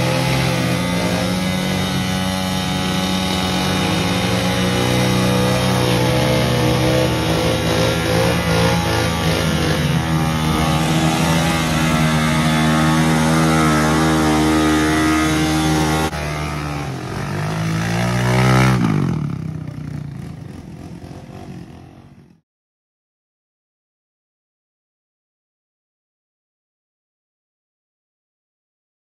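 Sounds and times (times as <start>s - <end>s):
atv engine revving: 0.0s - 22.4s
atv engine running: 0.0s - 22.4s.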